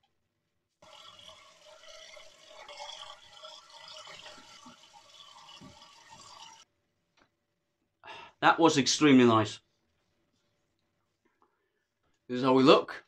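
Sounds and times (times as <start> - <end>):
tap water running: 0.8 - 6.7.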